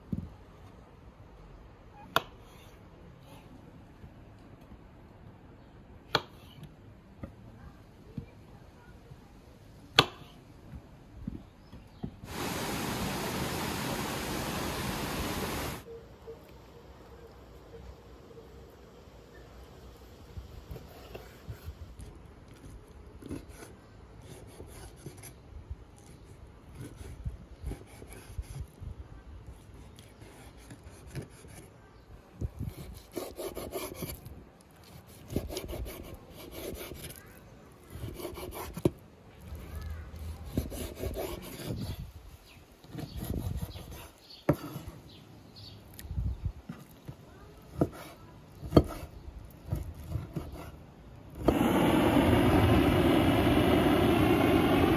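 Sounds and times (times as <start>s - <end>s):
knife sawing through meat: 32.7s - 37.2s, 40.3s - 42.0s, 43.1s - 44.2s.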